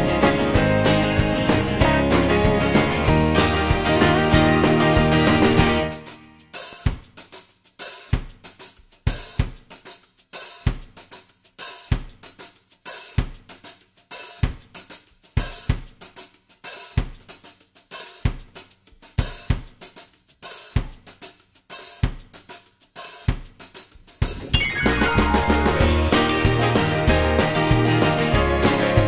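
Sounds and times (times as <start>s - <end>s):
cymbals and hi-hat: 0.0s - 29.0s
drum kit beat: 0.0s - 29.0s
kick drum: 6.9s - 7.1s, 9.1s - 9.7s.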